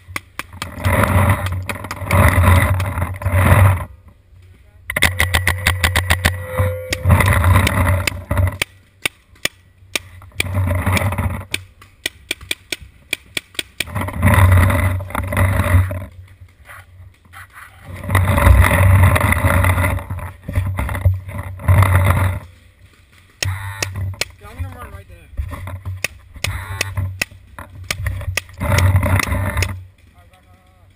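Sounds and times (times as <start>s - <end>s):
paintball markers popping: 6.9s - 14.1s, 22.4s - 24.9s, 25.8s - 29.8s.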